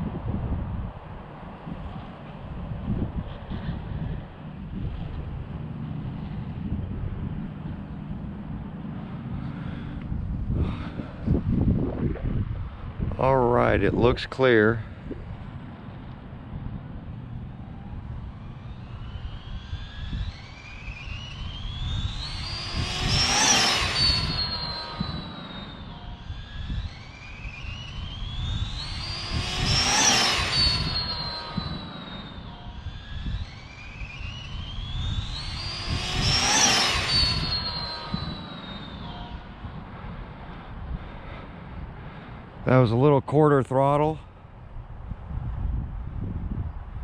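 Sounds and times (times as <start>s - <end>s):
wind rumble on microphone: 0.0s - 47.0s
rc car electric motor whining past: 14.9s - 42.5s.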